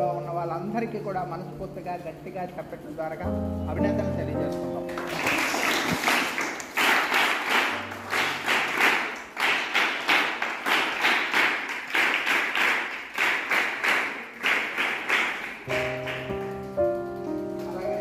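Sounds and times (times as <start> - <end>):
children clapping in time: 4.8 - 17.8.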